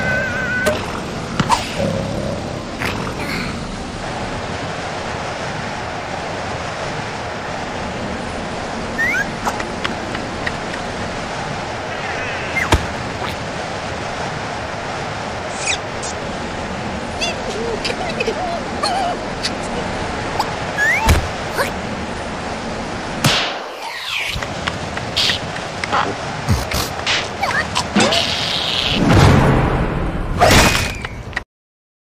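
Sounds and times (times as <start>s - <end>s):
storm wind rushing: 0.0s - 30.4s
high rising squeaks: 3.6s - 23.2s.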